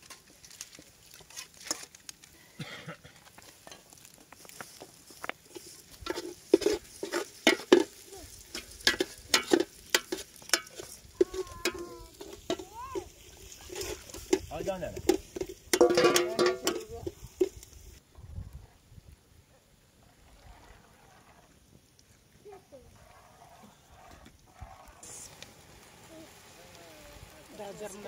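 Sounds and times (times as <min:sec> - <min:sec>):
metal spoon scraping a pot: 0:05.5 - 0:12.7, 0:13.4 - 0:17.6.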